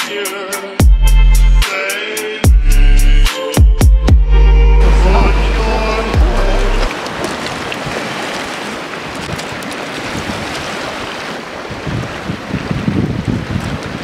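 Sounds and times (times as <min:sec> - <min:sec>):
waves washing onto pebbles: 0:06.4 - 0:12.7
wind buffeting microphone: 0:07.5 - 0:14.0.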